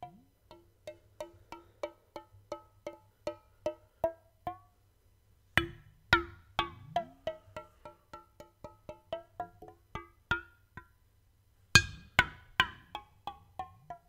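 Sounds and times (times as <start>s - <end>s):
pitched tapping notes: 0.0s - 4.7s, 5.6s - 10.9s, 11.8s - 14.0s.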